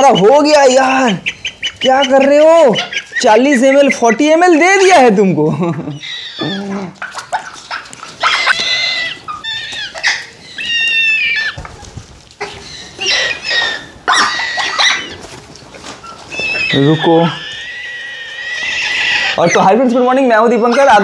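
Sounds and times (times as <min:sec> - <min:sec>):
baby parrots begging calls: 0:00.0 - 0:05.0, 0:05.9 - 0:06.8, 0:07.6 - 0:11.6, 0:16.3 - 0:21.0.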